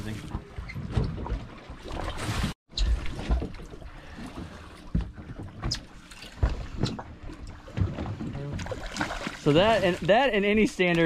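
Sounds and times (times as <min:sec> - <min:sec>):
water slapping against boat: 0:00.0 - 0:11.0.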